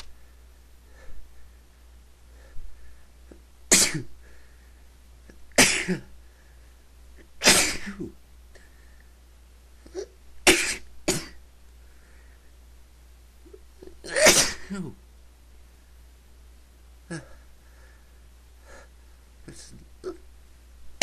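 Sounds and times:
person sneezing: 3.7 - 4.1, 5.5 - 6.1, 7.4 - 8.2, 9.9 - 11.4, 13.5 - 15.0.

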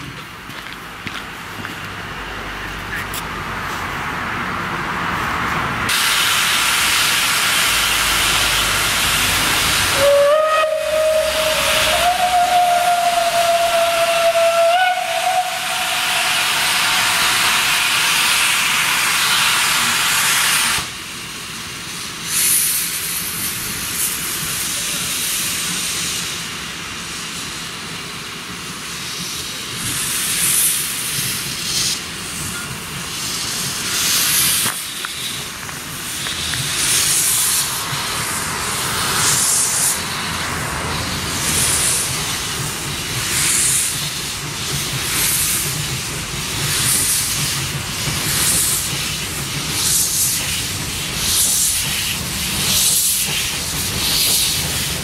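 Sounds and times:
steam locomotive hissing: 5.0 - 55.0
steam puffs: 5.9 - 55.0
steam whistle: 9.8 - 18.0.

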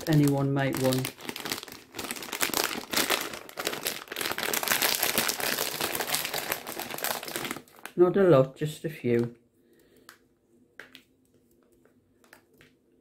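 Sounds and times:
plastic packet crinkling: 0.0 - 8.1.

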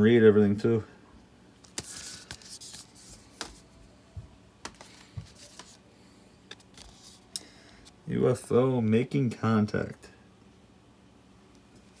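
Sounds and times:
cardboard sleeves tapping and scraping: 4.6 - 5.8.

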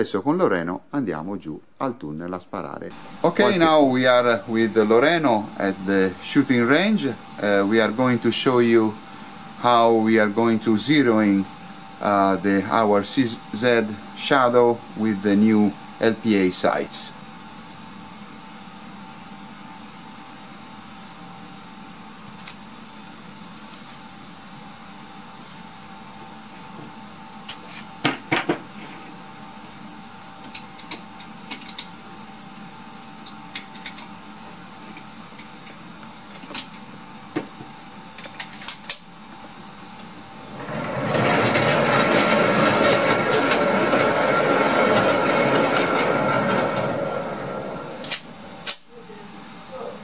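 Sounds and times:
electric target carrier running: 40.4 - 48.8.

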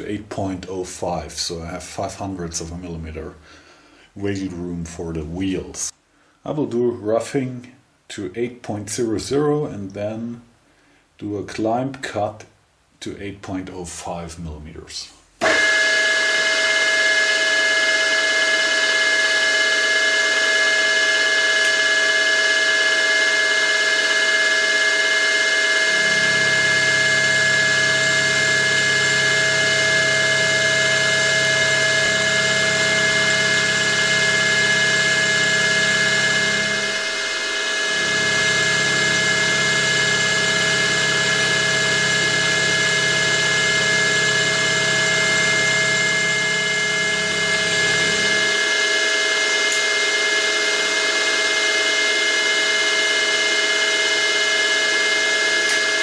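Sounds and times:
milling machine whine: 15.4 - 56.0
low hum: 25.4 - 51.3.

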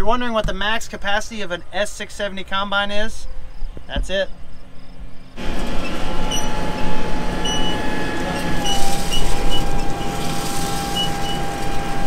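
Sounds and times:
machinery whine: 5.3 - 12.0
heavy machinery rumbling: 5.4 - 12.0.

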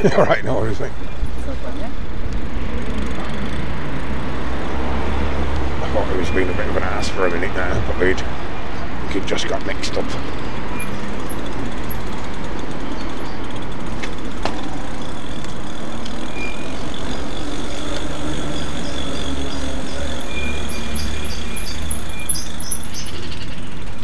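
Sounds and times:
tyres rolling on paved path: 0.0 - 24.0
sharp clicks: 9.4 - 17.2.

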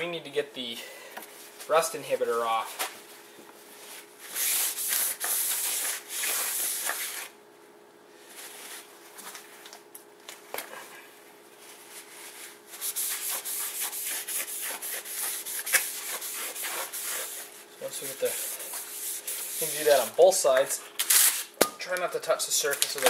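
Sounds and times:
cloth rubbing on metal: 11.6 - 20.1.

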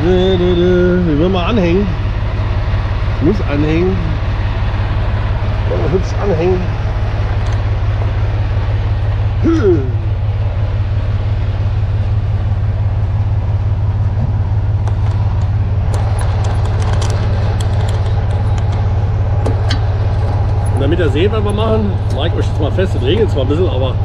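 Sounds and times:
diesel truck engine idling: 0.0 - 24.0
sharp metallic clicks and clatter: 14.8 - 22.3.

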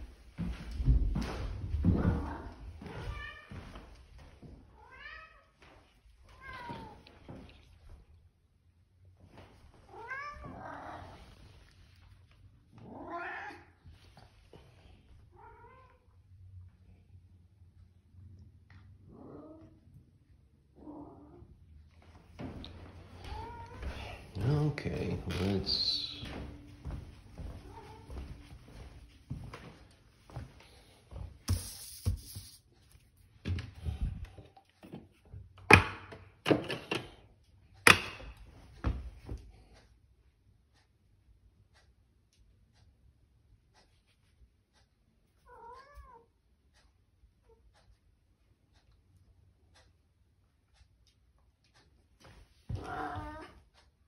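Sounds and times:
cat meowing: 2.0 - 3.6, 4.8 - 5.6, 9.9 - 11.1, 12.8 - 13.8, 45.5 - 46.3, 52.7 - 53.6.

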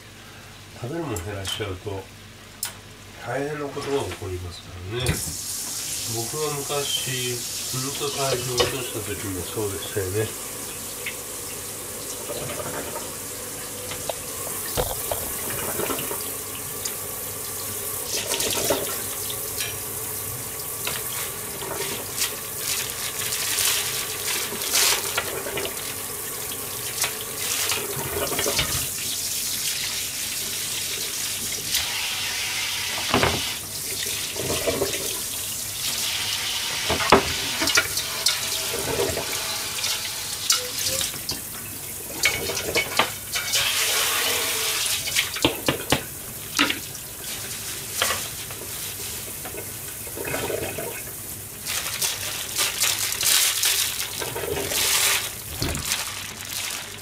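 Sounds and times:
tap running into a steel sink: 13.9 - 17.0.

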